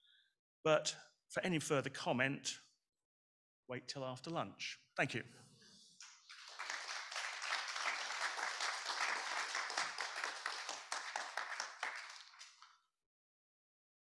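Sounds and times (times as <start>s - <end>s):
audience applauding: 6.0s - 12.8s.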